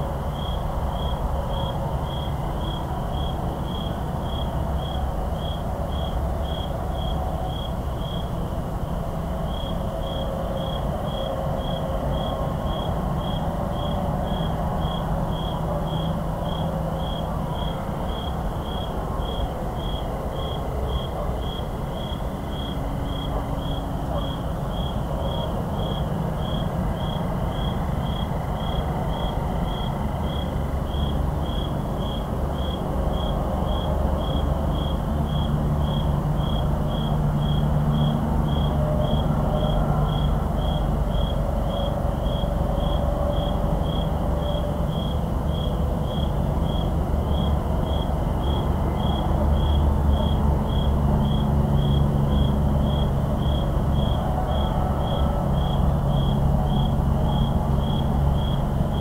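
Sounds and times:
cricket chirping: 0:00.0 - 0:08.4, 0:09.3 - 0:59.0
distant highway traffic rumble: 0:00.0 - 0:59.0.

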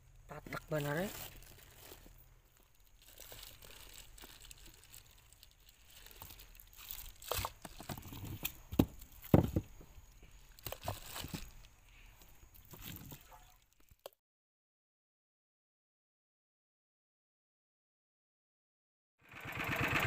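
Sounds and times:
plastic rustling and crinkling: 0:00.3 - 0:14.2
knocks in a styrofoam cooler: 0:08.7 - 0:09.8.

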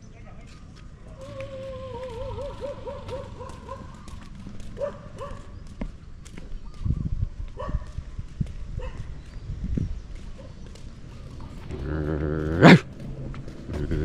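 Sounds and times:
dog barking: 0:02.4 - 0:04.0, 0:04.8 - 0:05.5, 0:07.6 - 0:07.9, 0:08.8 - 0:09.1.

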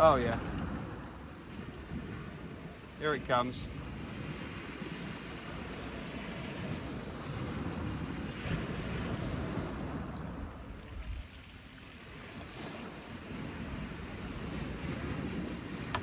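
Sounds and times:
surf breaking on beach: 0:00.0 - 0:16.0
wind buffeting microphone: 0:00.0 - 0:16.0.

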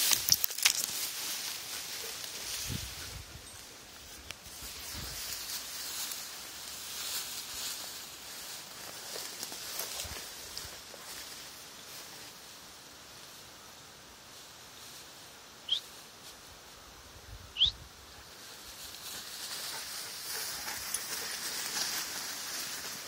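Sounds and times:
grass rustling: 0:00.0 - 0:23.0
bird chirping: 0:15.6 - 0:15.8, 0:17.6 - 0:17.8.

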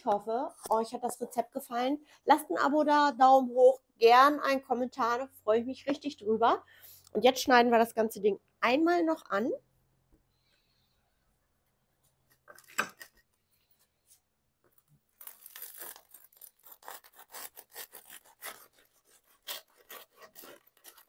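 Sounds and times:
knife sawing through bread crust: 0:15.6 - 0:21.0.

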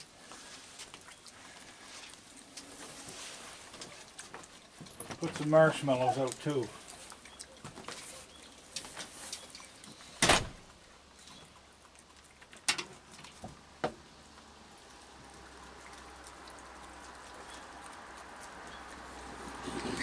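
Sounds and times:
raccoons clicking and tapping: 0:15.2 - 0:20.0.

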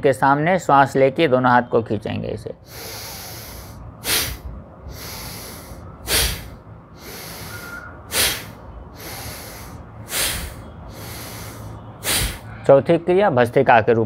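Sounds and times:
man breathing forcefully through nose: 0:02.6 - 0:12.7.

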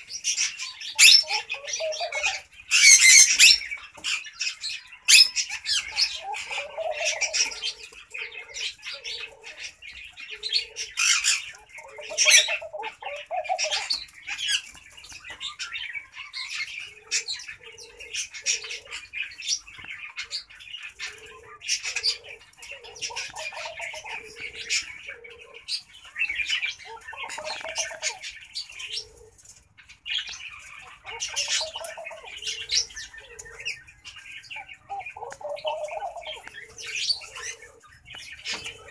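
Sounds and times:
dove cooing: 0:00.0 - 0:38.9
small birds chirping: 0:00.0 - 0:38.9.

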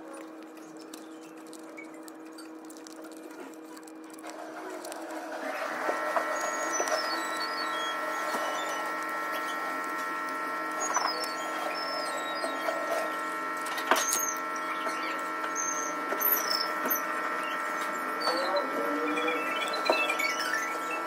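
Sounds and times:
wire rustling and clicking: 0:00.0 - 0:05.2
machine whirring hum: 0:00.0 - 0:21.0.

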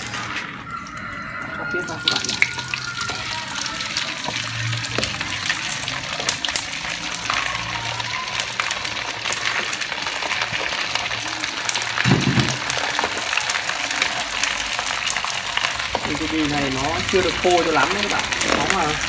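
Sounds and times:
pork skin frying in oil: 0:00.0 - 0:19.0.

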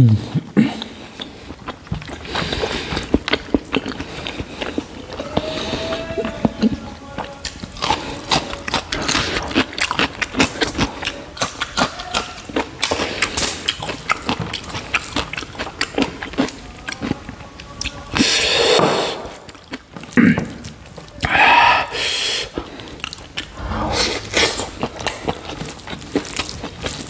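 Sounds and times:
wet chewing and mouth smacking: 0:00.1 - 0:27.0
rushing swell: 0:23.6 - 0:24.7.

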